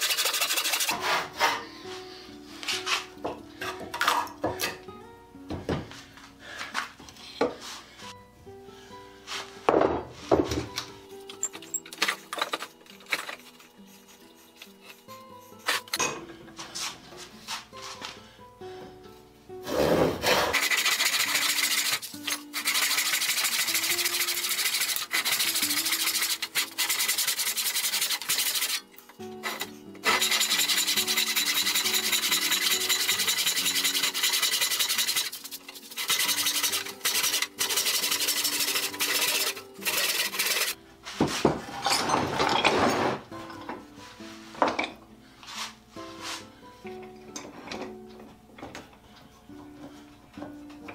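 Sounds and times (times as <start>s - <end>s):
handsaw cutting wood: 0.0s - 1.5s, 19.6s - 28.8s, 29.4s - 40.8s
background music: 0.8s - 50.9s.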